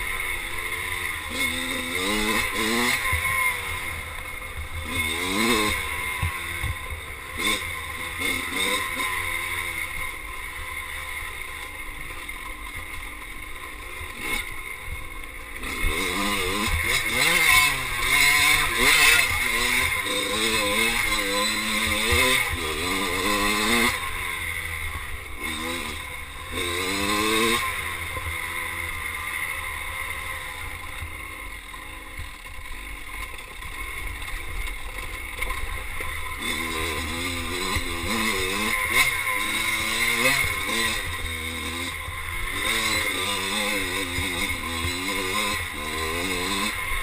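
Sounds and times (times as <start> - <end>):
dirt bike engine revving: 0.0 - 47.0.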